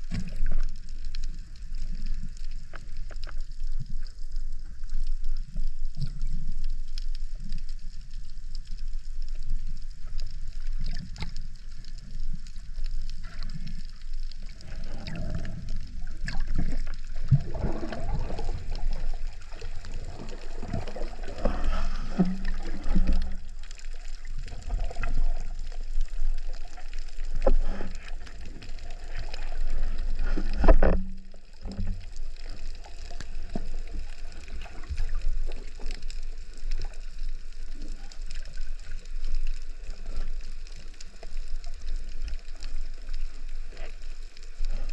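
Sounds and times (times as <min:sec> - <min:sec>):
water gurgling underwater: 0:00.0 - 0:44.9
gear knocking underwater: 0:14.5 - 0:25.3.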